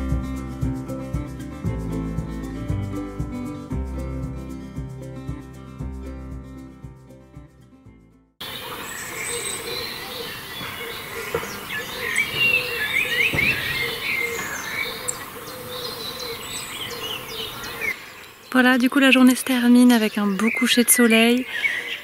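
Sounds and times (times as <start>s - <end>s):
background music: 0.0s - 8.3s
small birds chirping: 8.4s - 22.0s.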